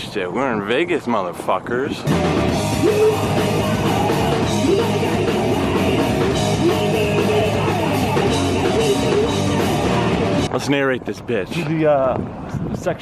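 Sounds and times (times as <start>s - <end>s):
bass guitar: 2.0s - 10.5s
drums: 2.0s - 10.5s
electric guitar: 2.0s - 10.5s
person singing: 2.7s - 10.4s.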